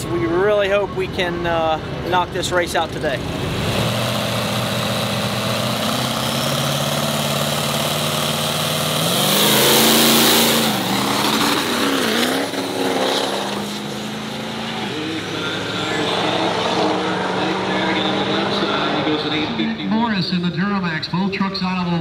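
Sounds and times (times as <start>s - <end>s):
diesel pickup engines revving: 0.0s - 22.0s.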